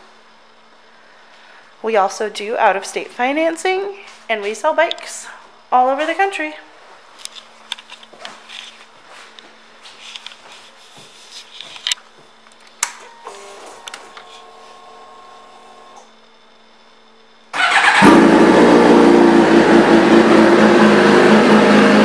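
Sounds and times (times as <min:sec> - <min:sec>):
motorcycle engine starting and running: 0:17.5 - 0:22.0.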